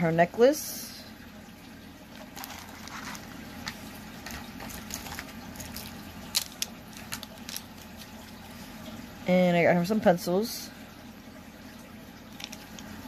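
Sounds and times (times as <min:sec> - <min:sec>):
plastic packaging crinkling: 0:02.2 - 0:08.5, 0:12.3 - 0:13.0.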